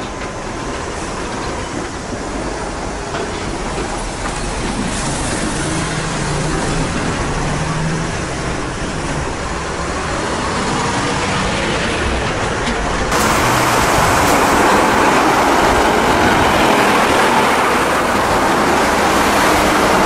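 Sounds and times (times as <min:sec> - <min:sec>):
traffic noise: 0:00.0 - 0:20.0
diesel truck engine humming: 0:13.1 - 0:20.0.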